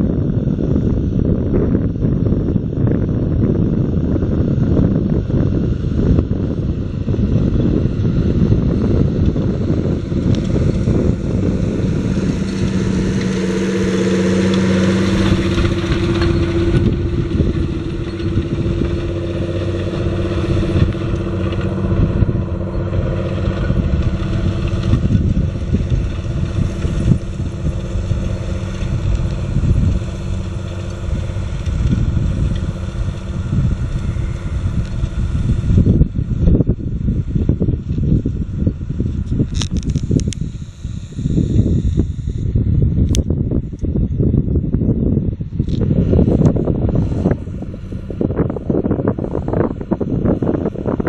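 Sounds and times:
tractor engine running under load: 0:00.0 - 0:51.0
disc harrow clattering through soil: 0:08.6 - 0:35.9.

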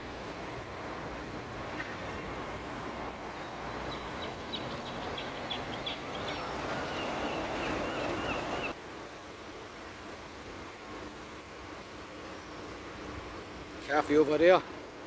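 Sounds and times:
steady traffic: 0:00.0 - 0:15.0
small bird chirping: 0:03.9 - 0:08.7
wavering high bird call: 0:03.9 - 0:08.8.

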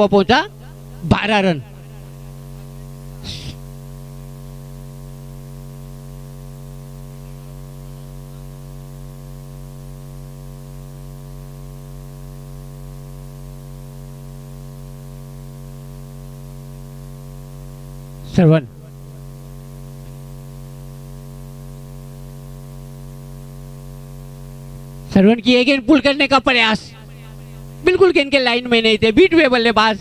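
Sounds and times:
electrical mains hum: 0:00.0 - 0:30.0
short hiss: 0:03.2 - 0:03.6.

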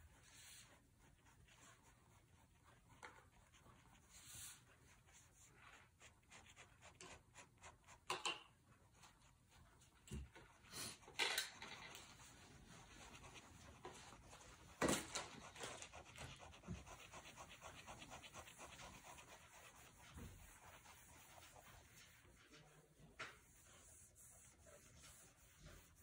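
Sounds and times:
pen scratching on paper: 0:11.8 - 0:22.3.

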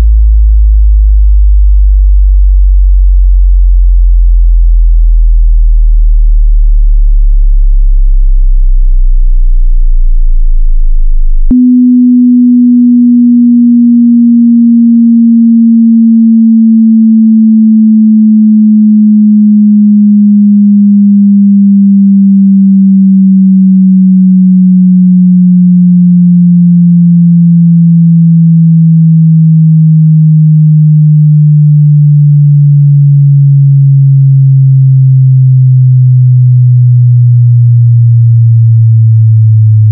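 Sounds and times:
deep bass sweep hum: 0:00.0 - 0:39.9
pure tone gliding down: 0:11.4 - 0:39.9
click: 0:13.2 - 0:17.4.

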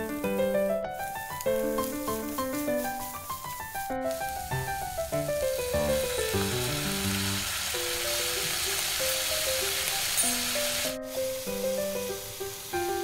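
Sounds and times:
background music with melody: 0:00.0 - 0:13.0
hot pan sizzling: 0:00.0 - 0:13.0.

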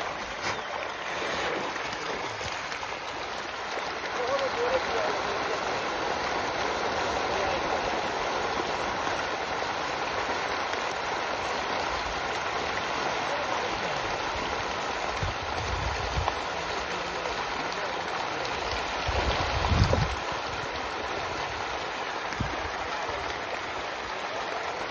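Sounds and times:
fish thrashing and splashing: 0:00.0 - 0:08.8.

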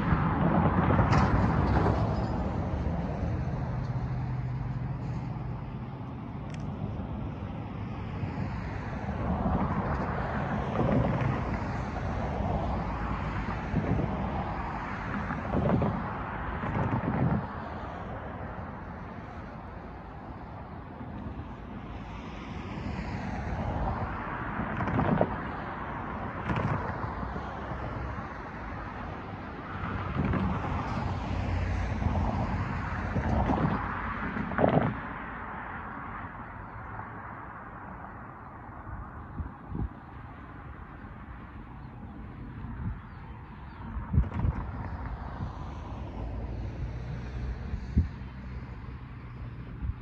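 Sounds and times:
wind buffeting microphone: 0:00.0 - 0:36.8, 0:37.6 - 0:50.0
car tyre noise passing: 0:00.0 - 0:50.0.

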